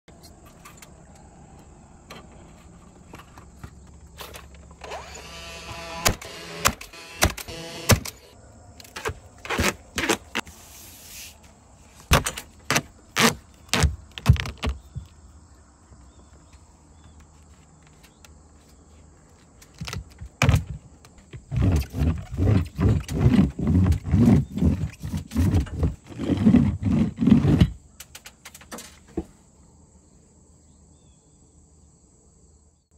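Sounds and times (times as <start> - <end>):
nail gun firing: 4.8 - 8.3
hand roller rubbing on wall: 21.4 - 27.8.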